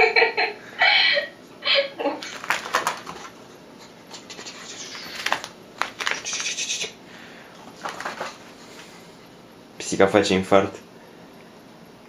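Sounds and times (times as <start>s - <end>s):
cat claws scratching on rug: 4.1s - 6.8s.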